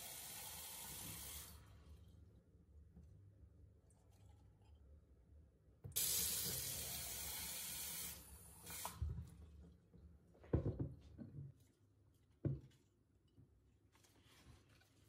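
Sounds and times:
tap water running into sink: 0.0 - 1.5, 5.9 - 9.2.

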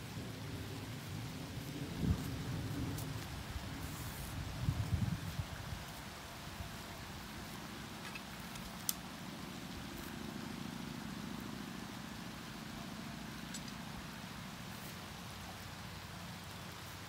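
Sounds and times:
low hum: 6.2 - 16.8.

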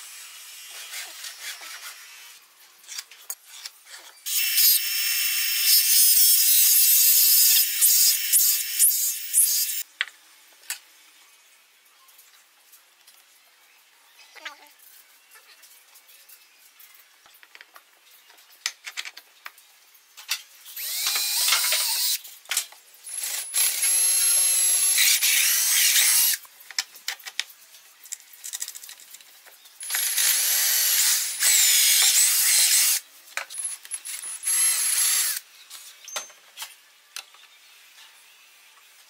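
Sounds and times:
high-pitched power tool running: 20.8 - 22.2.

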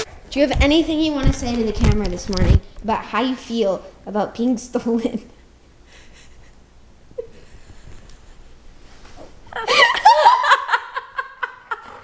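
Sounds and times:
woman laughing: 5.9 - 8.4, 9.5 - 12.0.

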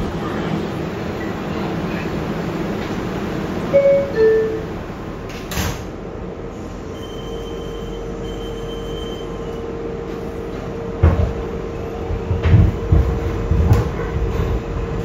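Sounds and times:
steady hum of train car: 0.0 - 15.0
subway door chime: 0.4 - 2.2, 2.8 - 5.7, 6.6 - 11.0.

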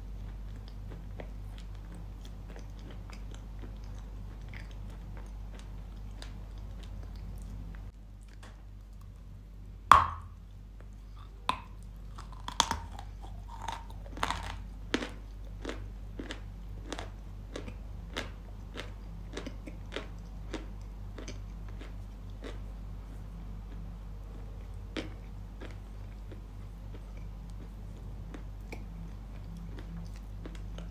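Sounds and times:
crunchy chewing: 0.0 - 9.2, 10.8 - 30.9
loud bite crunch: 11.5 - 17.6.

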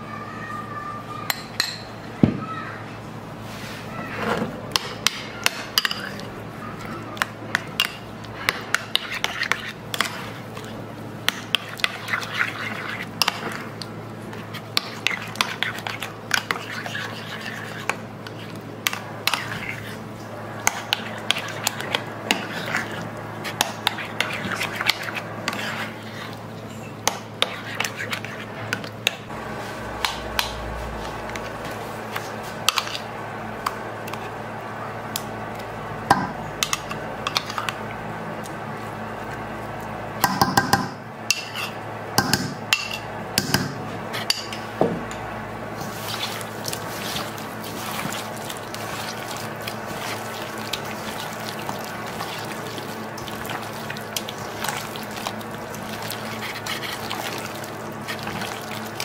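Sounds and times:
steady low hum: 4.5 - 59.0
spoon scraping a bowl: 11.5 - 13.6, 14.3 - 18.6, 20.7 - 28.5, 41.4 - 41.8.

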